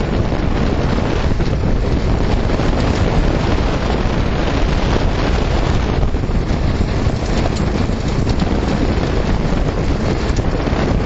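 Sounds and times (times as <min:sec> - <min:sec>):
wheels rumbling on dirt: 0:00.0 - 0:11.0
wind buffeting microphone: 0:00.0 - 0:11.0
knocks and rattles from bumps: 0:06.4 - 0:10.6.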